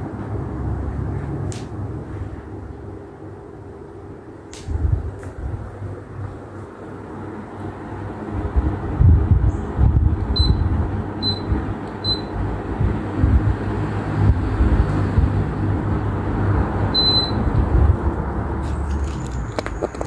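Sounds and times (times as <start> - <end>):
ceiling fan rumble: 0.0 - 20.0
fan receiver beeps: 9.5 - 12.5, 16.9 - 17.7.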